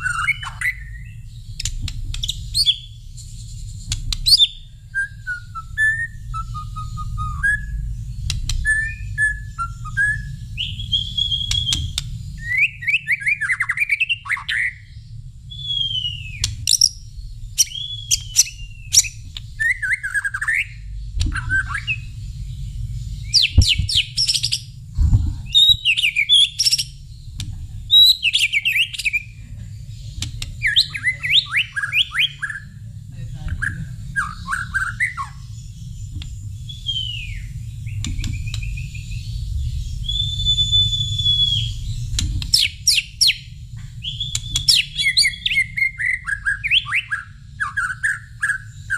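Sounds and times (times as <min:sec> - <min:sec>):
bird singing whistled phrases: 0:00.0 - 0:01.2, 0:04.2 - 0:07.9, 0:08.6 - 0:14.9, 0:15.5 - 0:17.0, 0:17.6 - 0:22.1, 0:23.2 - 0:24.6, 0:25.5 - 0:27.0, 0:27.9 - 0:29.3, 0:30.6 - 0:32.8, 0:33.6 - 0:35.5, 0:36.7 - 0:48.9
low rumble: 0:00.0 - 0:12.8, 0:14.8 - 0:46.1.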